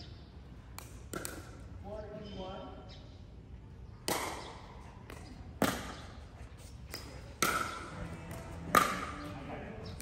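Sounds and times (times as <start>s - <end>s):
ball being struck: 0.8s - 1.6s, 4.0s - 6.2s, 6.9s - 9.4s.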